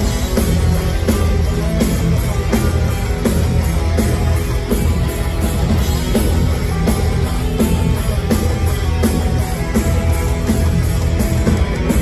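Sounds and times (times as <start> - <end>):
heavy metal band playing: 0.0 - 12.0.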